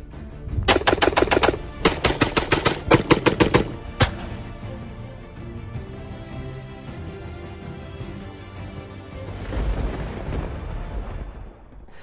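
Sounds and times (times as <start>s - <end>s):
background music: 0.0s - 12.0s
rapid gunfire: 0.7s - 4.0s.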